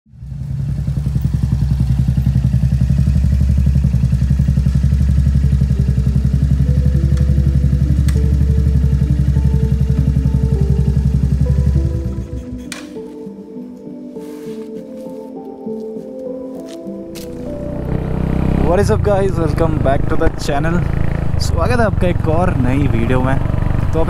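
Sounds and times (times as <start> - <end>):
motorcycle engine idling: 0.1 - 13.3, 17.2 - 24.0
simple melody of held notes: 5.2 - 19.2.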